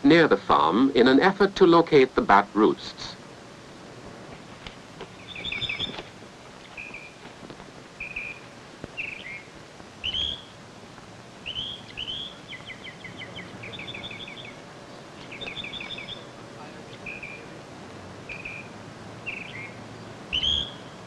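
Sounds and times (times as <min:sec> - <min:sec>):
faint steady hiss: 0:00.0 - 0:21.0
birds chirping and whistling: 0:05.1 - 0:07.2, 0:08.0 - 0:10.6, 0:11.4 - 0:17.5, 0:18.3 - 0:21.0
bird trill: 0:05.2 - 0:06.0, 0:06.6 - 0:07.2, 0:08.0 - 0:10.6, 0:11.4 - 0:14.6, 0:15.2 - 0:17.5, 0:18.3 - 0:21.0.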